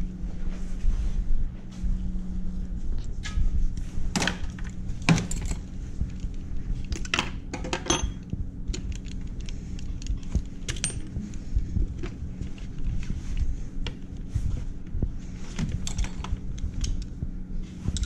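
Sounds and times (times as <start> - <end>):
metal tools clinking: 5.0 - 5.7, 7.0 - 8.2, 10.7 - 11.2, 15.8 - 16.4.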